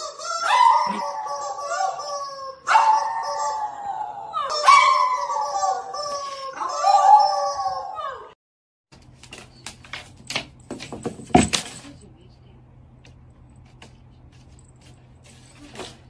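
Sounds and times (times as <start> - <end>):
dog howling: 0.0 - 8.4.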